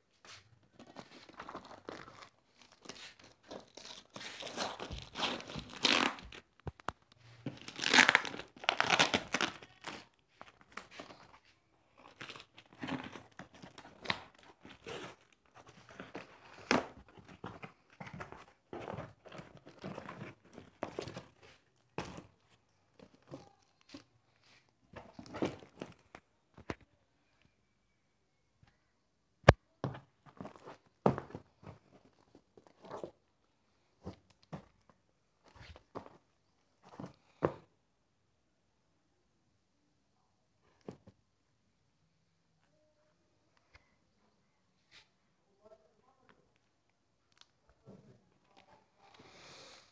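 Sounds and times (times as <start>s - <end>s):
plastic wrap crinkling: 0.7s - 11.4s
tape and cardboard ripping: 3.5s - 6.4s, 7.5s - 10.0s.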